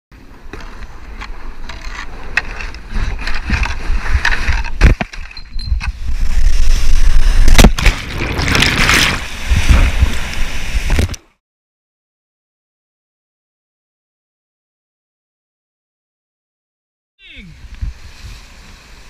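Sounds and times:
kayak hull scraping on rock: 0:00.3 - 0:11.2
rushing water: 0:06.7 - 0:11.3.

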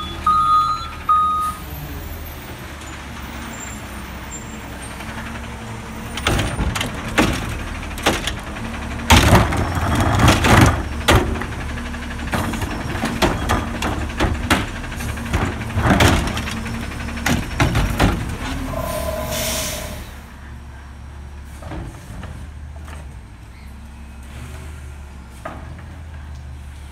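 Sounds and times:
truck engine running: 0:00.0 - 0:21.6
cart clanks and bangs: 0:04.8 - 0:19.9.

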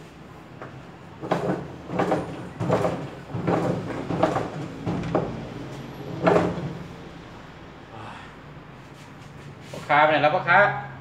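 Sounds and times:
metal bar banging in washer drum: 0:01.2 - 0:06.8.

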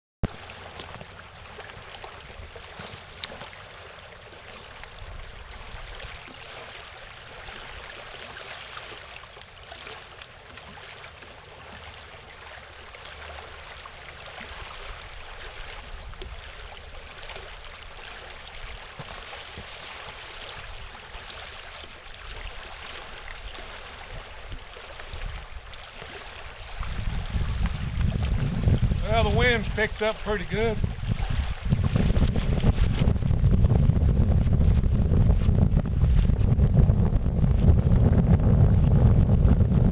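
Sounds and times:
waves lapping on gravel shore: 0:17.3 - 0:33.1
wind buffeting microphone: 0:23.2 - 0:39.9.

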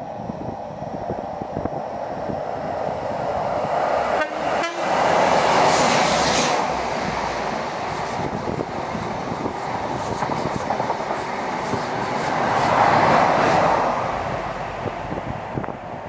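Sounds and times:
diesel locomotive engine: 0:00.0 - 0:16.0
train wheels clicking on rails: 0:04.8 - 0:14.3.

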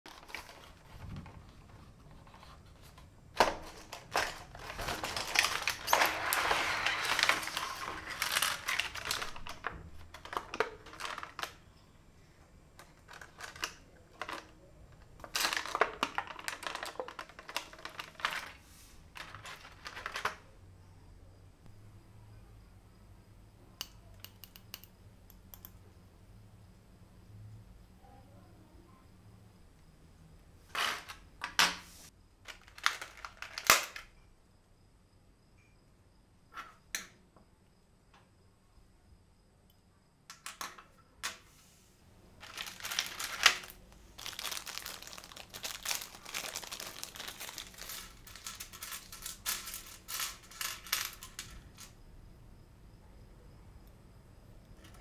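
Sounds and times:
plastic packaging crinkling: 0:00.1 - 0:11.6, 0:12.8 - 0:14.6, 0:15.2 - 0:20.4, 0:32.5 - 0:34.0, 0:42.4 - 0:51.9.

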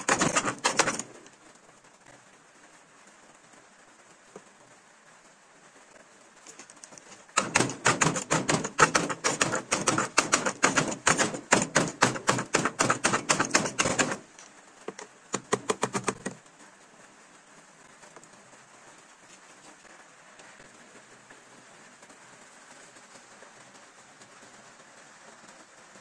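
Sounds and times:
chopper blades clacking on board: 0:00.0 - 0:01.1, 0:07.4 - 0:14.2.

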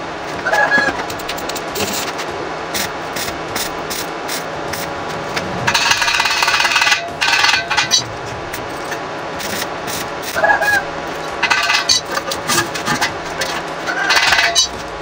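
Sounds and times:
harsh welding crackle: 0:01.0 - 0:15.0.

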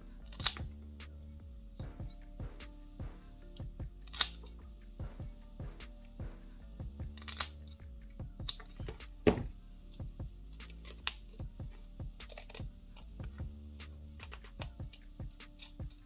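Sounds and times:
background music: 0:00.0 - 0:16.0
small scissors snipping: 0:10.6 - 0:11.4, 0:12.2 - 0:13.2, 0:13.8 - 0:16.0.

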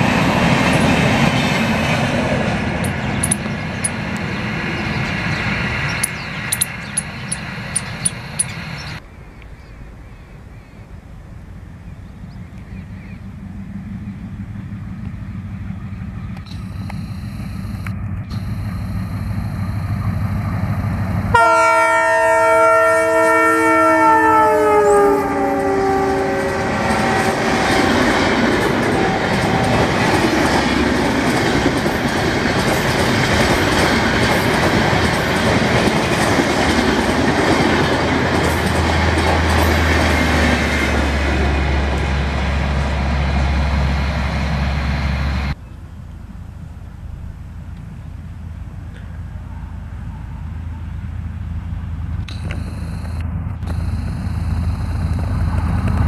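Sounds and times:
train passing at high speed: 0:00.0 - 0:09.0, 0:10.9 - 0:45.6, 0:46.2 - 0:56.0
wheels clacking over rail joints: 0:00.0 - 0:09.0, 0:26.2 - 0:43.9
low steady generator hum: 0:02.4 - 0:30.1, 0:40.7 - 0:56.0
train horn blast: 0:21.3 - 0:30.3.

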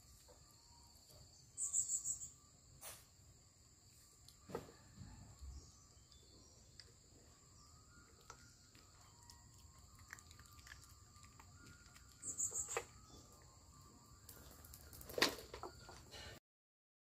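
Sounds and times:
high insect drone: 0:00.0 - 0:16.4
puppy crunching kibble: 0:08.0 - 0:13.4.

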